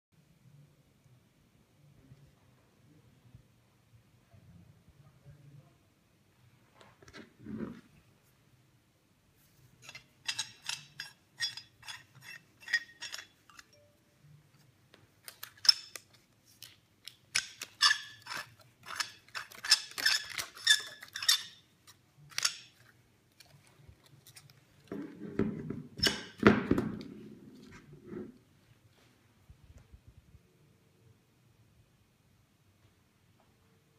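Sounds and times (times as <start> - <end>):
metal turnbuckle clinking: 9.8 - 13.9, 15.3 - 16.1, 22.3 - 22.8.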